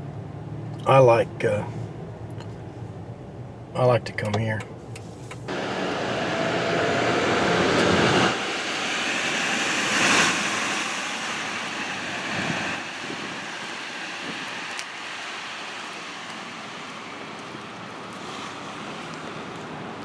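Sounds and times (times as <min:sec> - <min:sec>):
traffic noise: 0:00.0 - 0:20.0
pickup truck driving past: 0:05.5 - 0:20.0.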